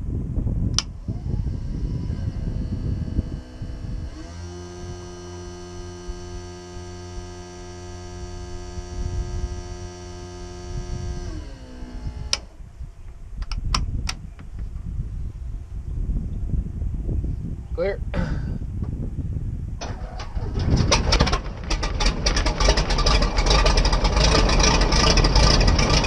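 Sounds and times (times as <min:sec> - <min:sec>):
low rumble: 0:00.0 - 0:26.0
electric motor humming: 0:00.8 - 0:12.6, 0:19.8 - 0:26.0.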